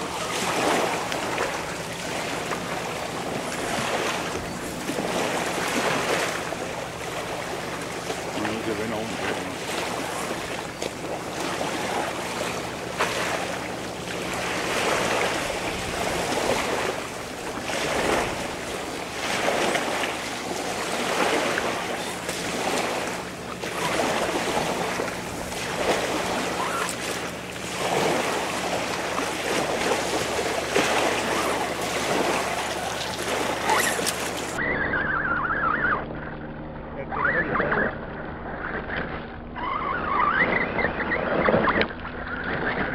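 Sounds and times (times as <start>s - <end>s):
small waves on stony shore: 0.0s - 36.4s
wind on microphone: 13.3s - 27.1s.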